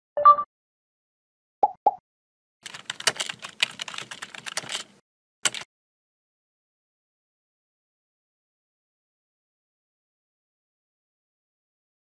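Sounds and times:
keyboard typing clicks: 2.6s - 5.7s.

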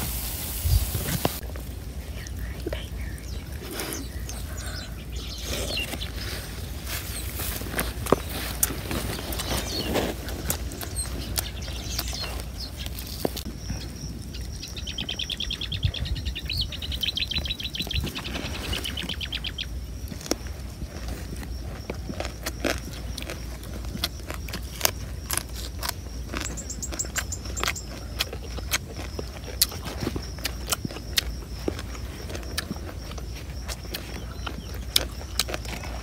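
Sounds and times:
people eating with fingers: 0.2s - 36.0s
bird chirp: 2.1s - 25.0s, 25.7s - 36.0s
bird trilling: 14.4s - 19.8s.

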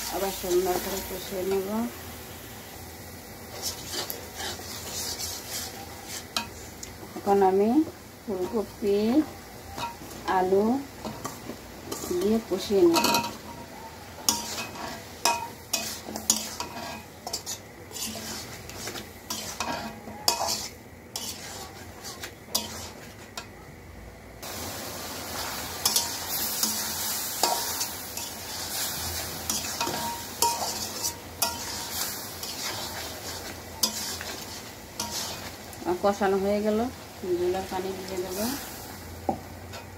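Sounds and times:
frying oil sizzling: 0.0s - 23.4s, 24.4s - 39.9s
metal spatula scraping pan: 3.5s - 6.7s, 11.0s - 23.3s, 25.4s - 35.6s.

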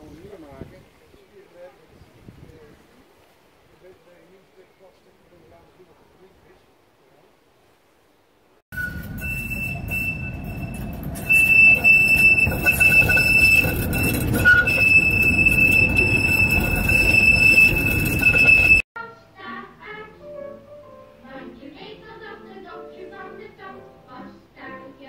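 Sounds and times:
tram rumbling: 8.7s - 18.8s
tram wheels squealing: 8.7s - 18.8s.

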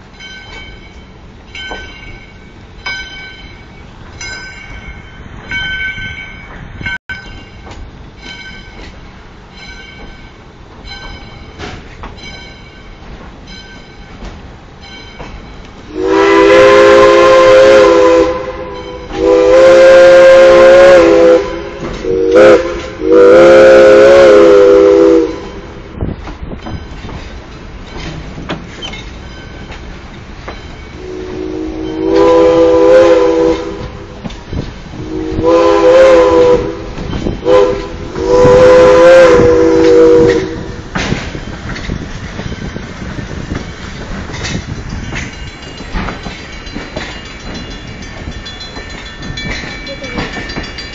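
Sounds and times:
train wheels running over rails: 0.0s - 50.9s
steam locomotive chime whistle: 9.6s - 25.9s, 30.4s - 34.2s, 34.9s - 40.8s, 44.4s - 50.9s.

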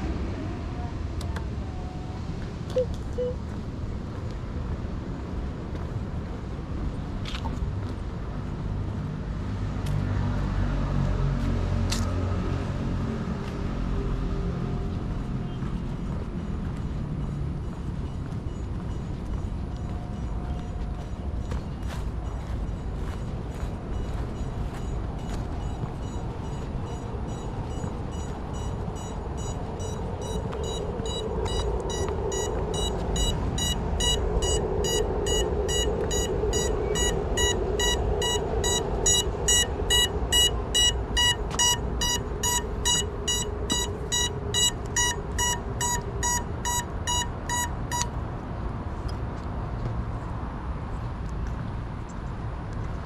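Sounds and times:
fast electronic beeping: 23.9s - 48.1s.

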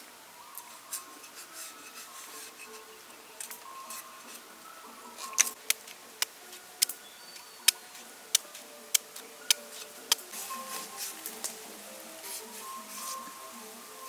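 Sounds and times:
cleaver shaving radish: 7.6s - 11.6s.

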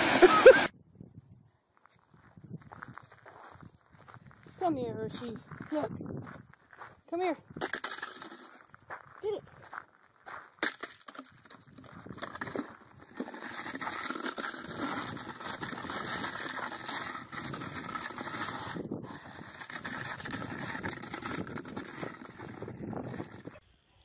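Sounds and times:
plastic bowl scraping on gravel: 0.0s - 0.7s, 7.6s - 8.8s, 10.6s - 23.6s
dog paws crunching on stones: 1.9s - 23.4s.

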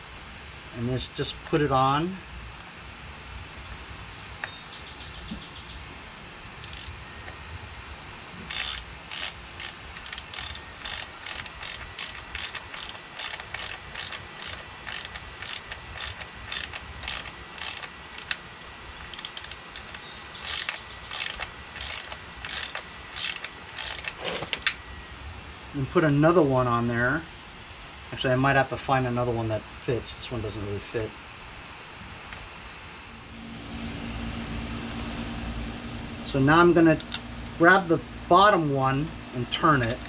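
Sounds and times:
ratchet wrench clicking: 6.6s - 7.0s, 8.5s - 18.4s, 19.1s - 24.8s.

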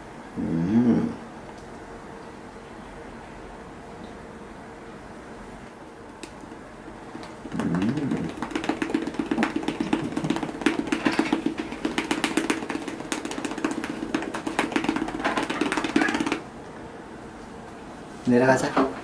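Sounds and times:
hand patting a cat: 7.5s - 16.4s.

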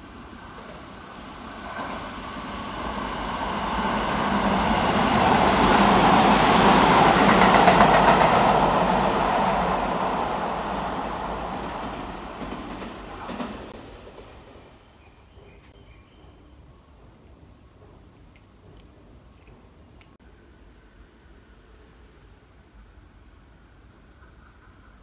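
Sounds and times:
electric train passing: 0.0s - 15.0s.

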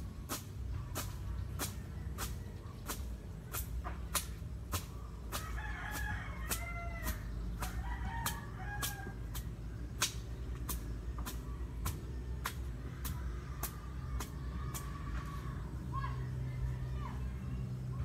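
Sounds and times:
rooster crowing: 5.4s - 9.4s.

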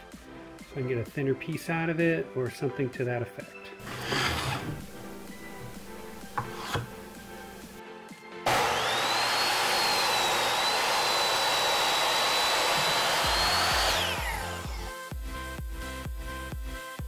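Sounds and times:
saw blade spinning down: 3.8s - 4.9s, 8.5s - 14.9s
miter saw motor whine: 8.5s - 14.9s
music with steady beat: 13.2s - 17.0s.

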